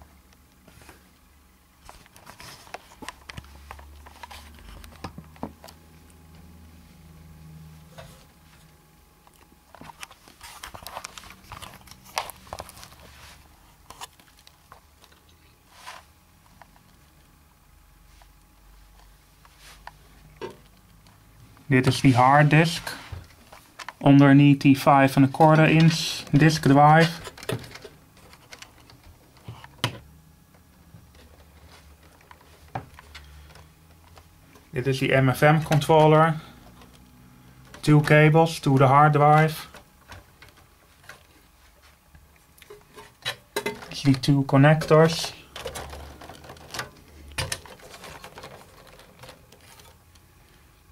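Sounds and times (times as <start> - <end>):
clicks taps and rustles: 25.3 - 34.7, 37.6 - 50.3.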